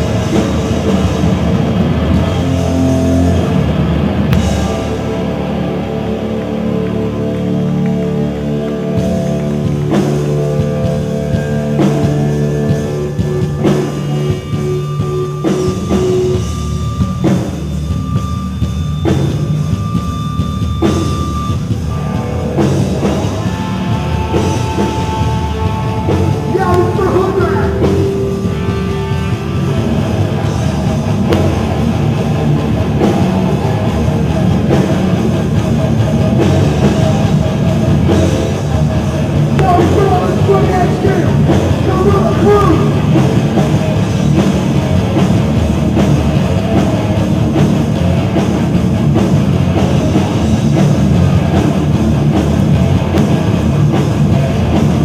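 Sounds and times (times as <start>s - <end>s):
distorted guitar chords: 0.0s - 55.0s
punk vocals: 23.4s - 29.0s, 39.5s - 43.6s.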